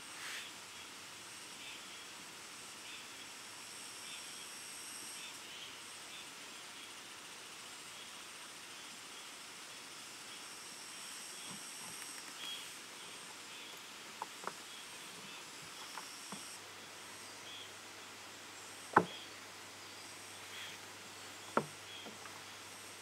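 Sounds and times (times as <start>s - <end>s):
steady low hiss: 0.0s - 23.0s
faint high chirps: 11.3s - 23.0s.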